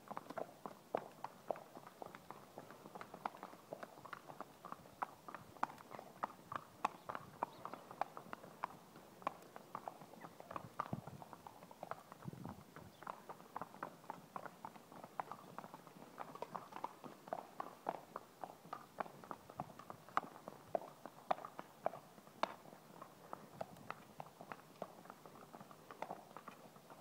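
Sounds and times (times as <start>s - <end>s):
horse hooves on tarmac: 0.0s - 27.0s.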